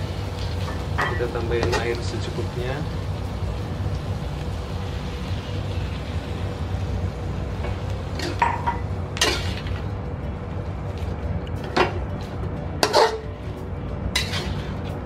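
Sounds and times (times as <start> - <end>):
steady low rumble: 0.0 - 15.0
metal spatula clanking in wok: 8.2 - 9.8, 12.8 - 13.3, 14.1 - 14.8.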